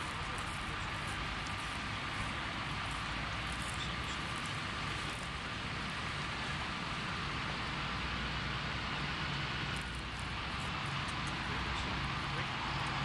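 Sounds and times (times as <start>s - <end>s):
low engine drone: 0.0s - 13.0s.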